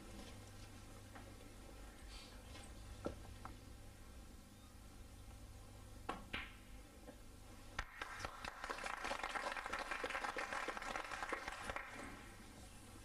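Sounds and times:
audience applause: 0:07.8 - 0:12.3.

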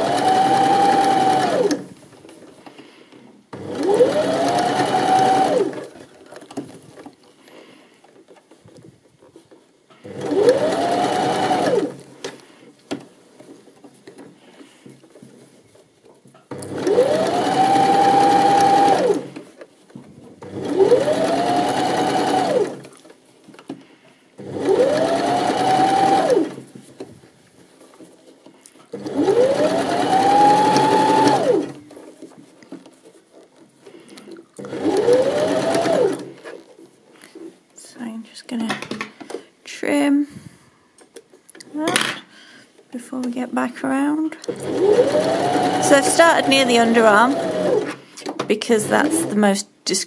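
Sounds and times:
sewing machine motor whine: 0:00.0 - 0:01.9, 0:03.5 - 0:06.0, 0:10.0 - 0:12.0, 0:16.5 - 0:19.4, 0:20.4 - 0:22.9, 0:24.4 - 0:26.6, 0:29.0 - 0:31.8, 0:34.6 - 0:36.4, 0:44.5 - 0:48.0, 0:48.8 - 0:49.4.

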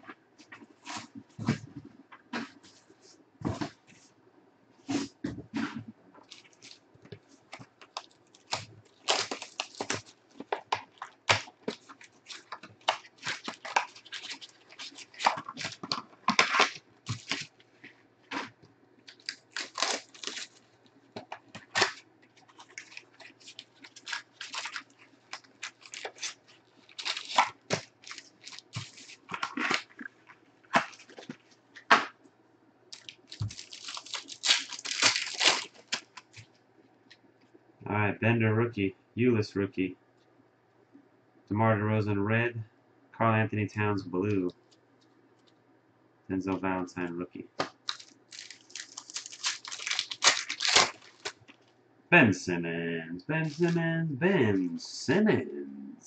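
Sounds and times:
foil wrappers crinkling and tearing: 0:06.2 - 0:06.9, 0:07.5 - 0:32.0, 0:32.9 - 0:36.6, 0:47.6 - 0:51.7.

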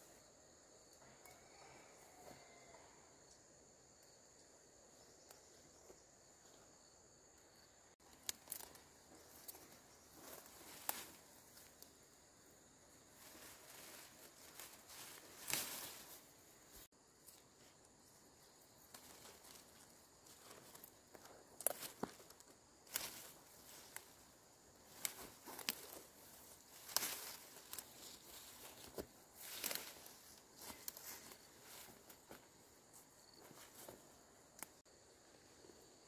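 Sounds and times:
faint insect drone: 0:00.0 - 0:36.0
fern fronds rustling: 0:08.0 - 0:34.8.

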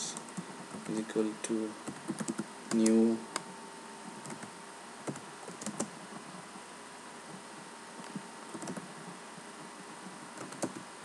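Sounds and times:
steady background hiss: 0:00.0 - 0:11.0
keyboard typing clicks: 0:01.8 - 0:03.4, 0:04.2 - 0:05.9, 0:08.1 - 0:08.9, 0:10.4 - 0:10.8.

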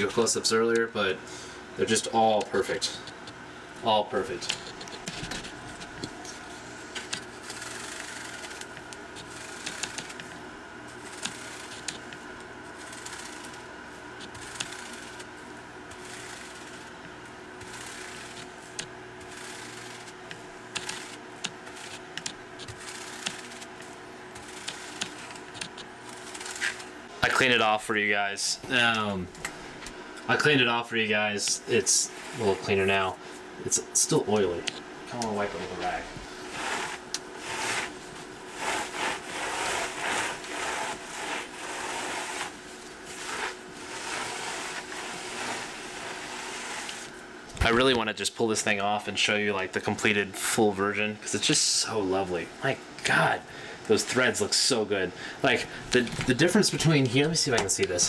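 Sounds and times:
paintbrush brushing metal plate: 0:36.5 - 0:47.1.

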